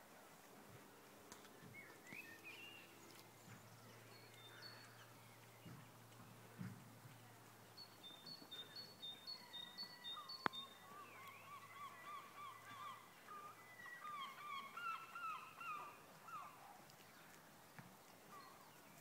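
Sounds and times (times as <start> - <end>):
lower wavering bird calls: 1.7 - 5.8, 7.8 - 17.3, 18.3 - 19.0.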